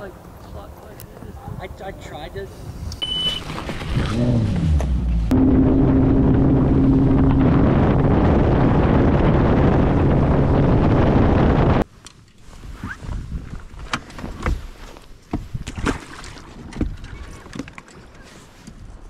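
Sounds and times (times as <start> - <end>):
wind on microphone: 1.2 - 11.8, 12.5 - 17.5
outboard motor droning: 5.0 - 11.8.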